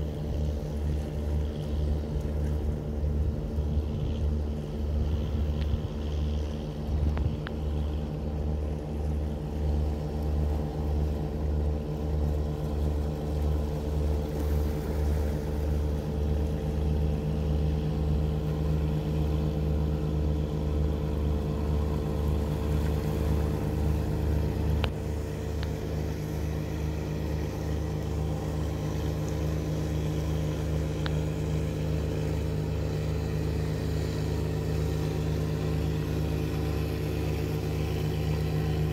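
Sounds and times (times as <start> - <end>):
boat engine throbbing: 0.0 - 38.9.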